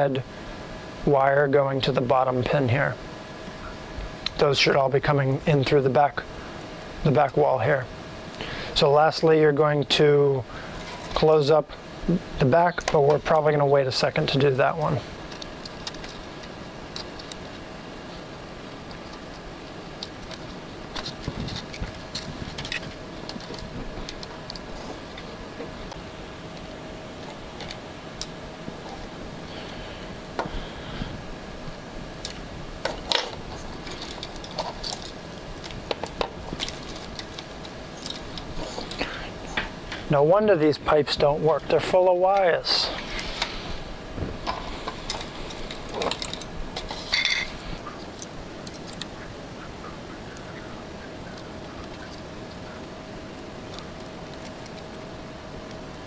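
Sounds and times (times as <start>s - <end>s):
faint hum: 0.0s - 56.0s
wires and connectors clicking and rustling: 12.7s - 29.2s, 32.2s - 40.0s, 44.3s - 49.2s, 50.4s - 56.0s.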